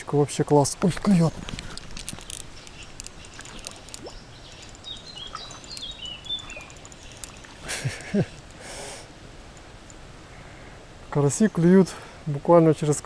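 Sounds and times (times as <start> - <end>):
faint outdoor background noise: 0.0 - 13.0
songbird singing: 0.6 - 8.6
light clicks: 1.3 - 8.6.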